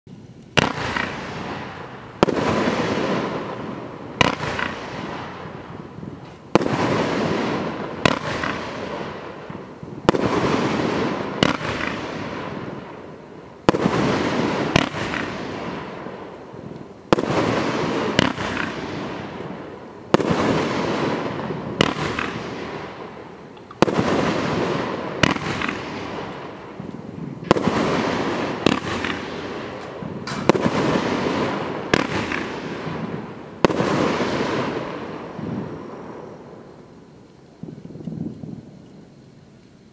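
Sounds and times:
noisy firework tail: 0.1 - 39.9
firework cake shots: 0.5 - 3.5, 20.1 - 23.0, 23.6 - 34.9.

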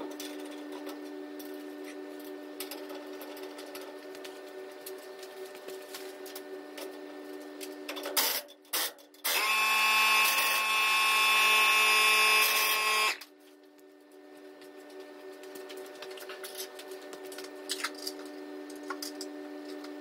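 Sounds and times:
air impact wrench: 8.2 - 13.2.

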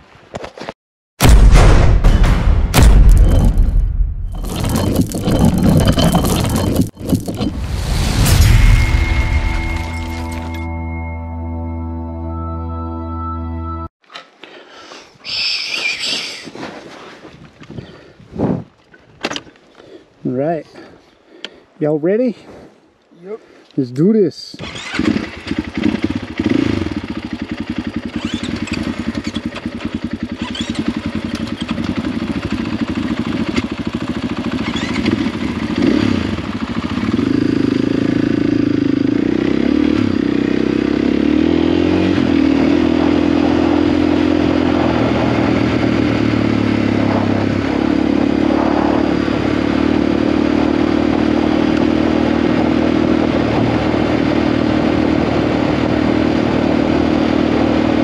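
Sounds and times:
knocks and clatter: 2.1 - 7.6
motorcycle engine riding: 2.8 - 8.9, 24.6 - 58.0.

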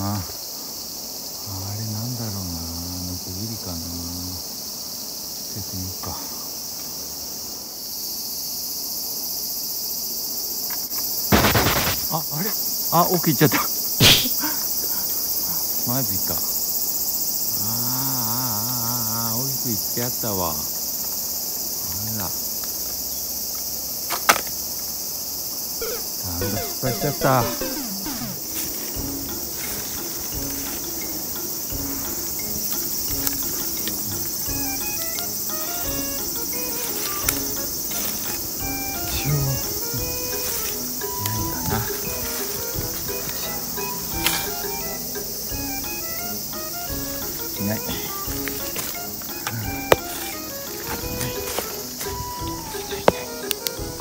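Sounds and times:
cicadas chorus: 0.0 - 54.0
insects buzzing: 0.0 - 54.0
footsteps on forest floor: 10.7 - 12.7, 25.8 - 54.0
pole knocking against tree: 46.9 - 54.0.

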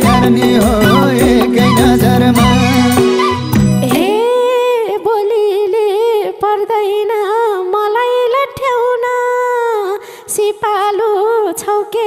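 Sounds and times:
ornamented folk melody instrument: 0.0 - 4.4.

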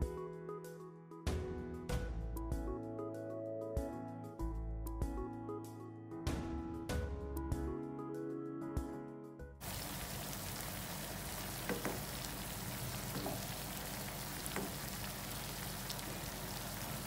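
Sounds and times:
chicken sizzling in frying pan: 9.6 - 17.0.

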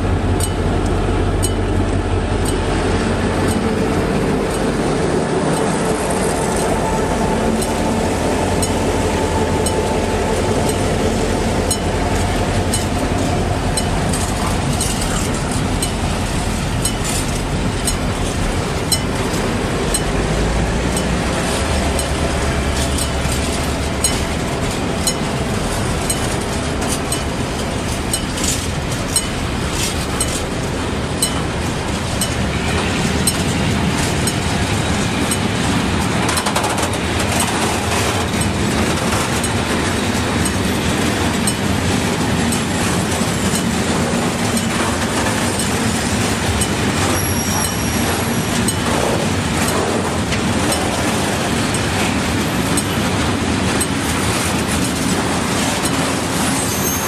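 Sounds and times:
diesel locomotive engine drone: 0.0 - 57.0
freight train rumbling by: 0.0 - 57.0
wheel clicks over rail joints: 11.6 - 20.3, 20.9 - 57.0.

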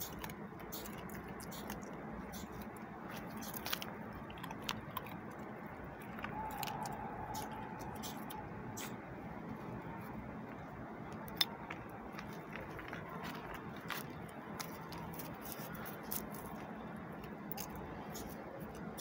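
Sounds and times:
dog chewing food: 0.0 - 8.4.

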